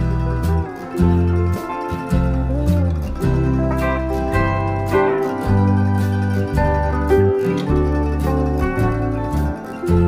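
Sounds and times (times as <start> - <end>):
plucked-string jingle: 0.0 - 10.0
steady bass line: 0.0 - 10.0.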